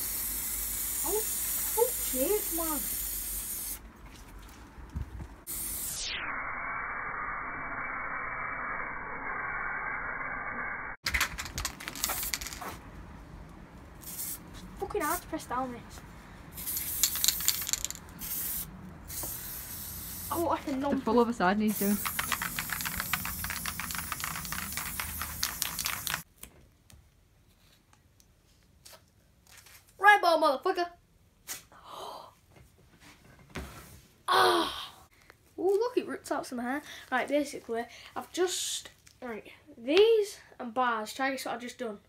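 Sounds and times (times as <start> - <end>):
spray paint can hissing: 0.0 - 3.8, 5.4 - 6.1, 11.9 - 12.7, 14.0 - 14.4, 16.6 - 20.8, 21.6 - 26.3
sharp clicks and rattles: 11.0 - 12.7, 16.8 - 18.1, 21.8 - 26.3.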